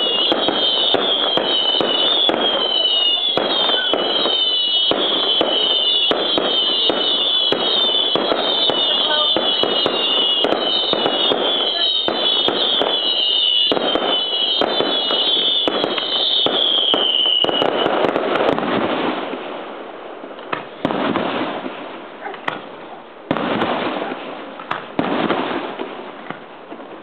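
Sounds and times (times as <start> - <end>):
falling whistles: 0.0 - 18.0
fireworks shells bursting: 0.0 - 19.4
fireworks booms: 0.0 - 27.0
fireworks crackles and bangs: 0.0 - 27.0.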